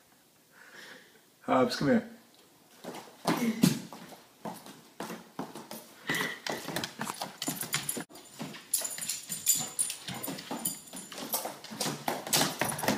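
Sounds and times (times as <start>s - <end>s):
dog boots clomping on wood floor: 4.1s - 12.9s.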